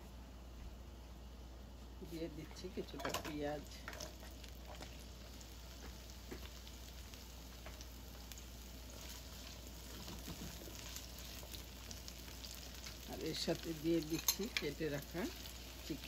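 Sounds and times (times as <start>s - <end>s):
onions sizzling in oil: 2.9s - 16.0s
spatula stirring in wok: 3.8s - 13.1s.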